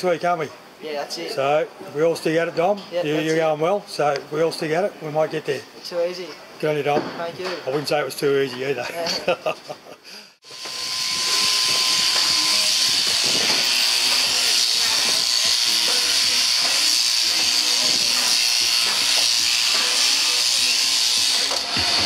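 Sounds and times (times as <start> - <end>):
shearing handpiece hissing: 10.4 - 22.0.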